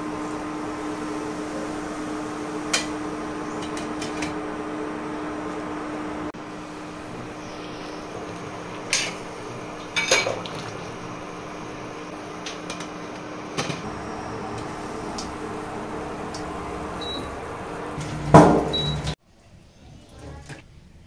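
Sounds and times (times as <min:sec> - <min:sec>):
boiling in a metal pot: 0:00.0 - 0:19.2
cooktop hum: 0:00.0 - 0:19.2
utensil clanking on pot: 0:08.9 - 0:09.2, 0:09.8 - 0:10.9.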